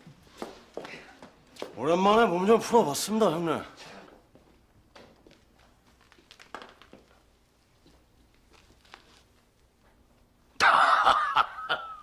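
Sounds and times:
faint rustles and clicks: 0:03.8 - 0:10.3
man laughing loudly: 0:10.6 - 0:12.0.

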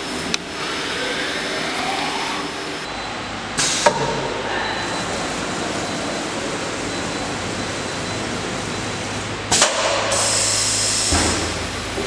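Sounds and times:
cnc router running: 0:00.0 - 0:03.4
pneumatic hiss: 0:03.6 - 0:04.8, 0:09.5 - 0:11.6.

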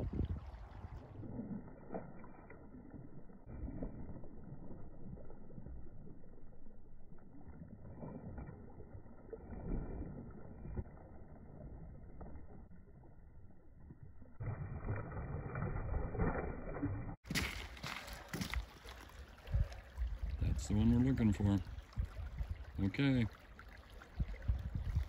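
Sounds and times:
wind on microphone: 0:00.0 - 0:01.6, 0:19.2 - 0:22.9, 0:24.1 - 0:25.0.

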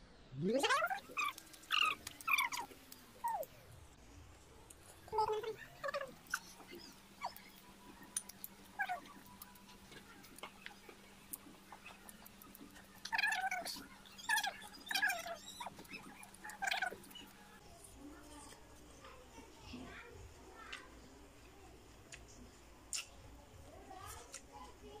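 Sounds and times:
high falling animal calls: 0:00.6 - 0:03.5.

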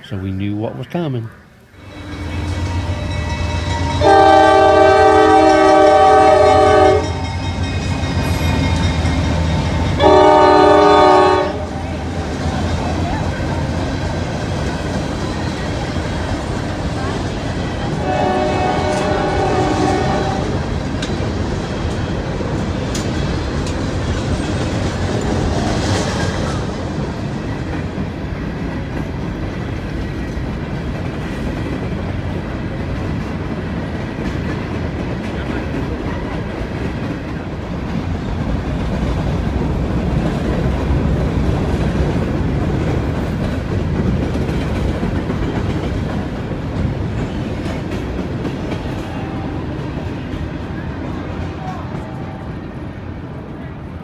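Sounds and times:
freight train rumbling: 0:00.0 - 0:54.0
train horn chord: 0:01.8 - 0:12.2, 0:17.9 - 0:20.6, 0:49.0 - 0:49.8.

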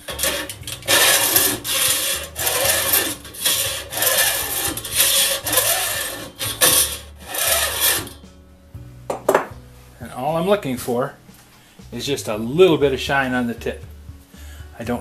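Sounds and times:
file rasping on saw teeth: 0:00.0 - 0:08.2.

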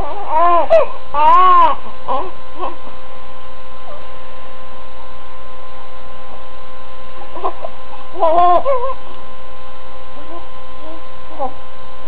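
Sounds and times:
baby crying: 0:00.0 - 0:02.8, 0:07.3 - 0:09.0
infant fussing: 0:00.0 - 0:02.8, 0:07.2 - 0:09.0
electrical hum: 0:00.0 - 0:12.0.

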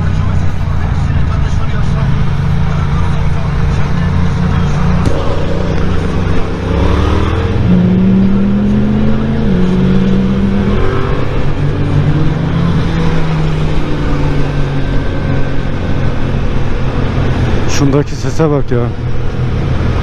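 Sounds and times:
motorcycle engine accelerating: 0:00.0 - 0:18.0.

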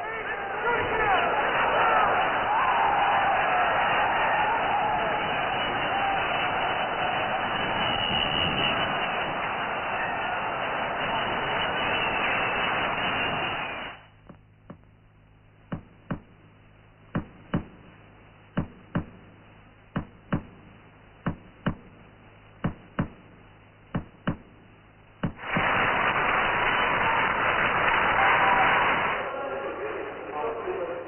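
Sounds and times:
crowd noise in an arena: 0:00.0 - 0:15.0, 0:17.2 - 0:31.0
sharp knocks in pairs: 0:15.7 - 0:16.4, 0:17.1 - 0:17.9, 0:18.6 - 0:19.3, 0:20.0 - 0:22.0, 0:22.6 - 0:23.3, 0:23.9 - 0:24.6, 0:25.2 - 0:25.4.

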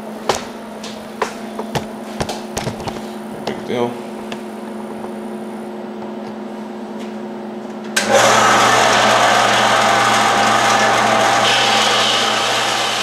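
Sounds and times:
bandsaw cutting metal: 0:08.0 - 0:13.0
bandsaw humming: 0:08.0 - 0:13.0.

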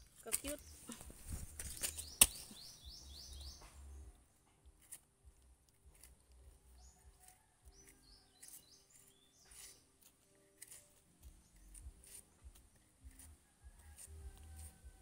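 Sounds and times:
bird chirping: 0:00.0 - 0:04.8, 0:05.9 - 0:10.1
blade striking bamboo: 0:01.5 - 0:02.7, 0:07.8 - 0:09.8, 0:10.6 - 0:15.0.

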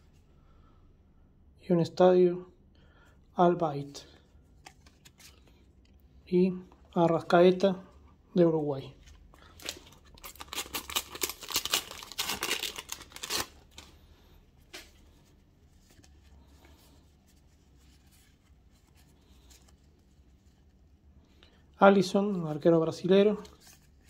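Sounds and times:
paper wrapper tearing: 0:09.4 - 0:14.0.

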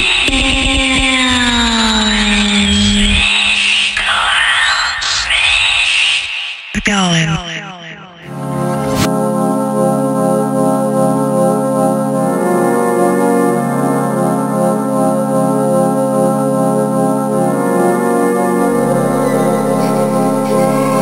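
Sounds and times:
slow pulsing organ-like chords: 0:08.3 - 0:21.0
higher layer of notes: 0:16.8 - 0:21.0.

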